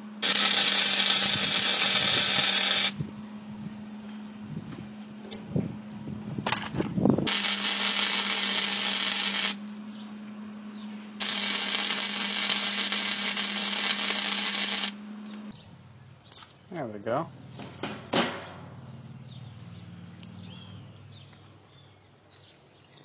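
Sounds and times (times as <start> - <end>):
arc welding hiss: 0.0 - 3.0, 7.3 - 9.6, 11.2 - 15.5
steady low hum: 0.0 - 22.8
knocks: 17.6 - 18.6.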